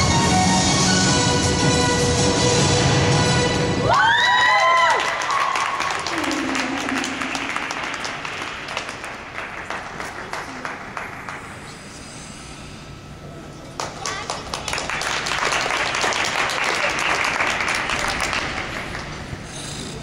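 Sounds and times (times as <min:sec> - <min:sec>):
audience applauding: 0:04.2 - 0:11.6, 0:13.8 - 0:19.4.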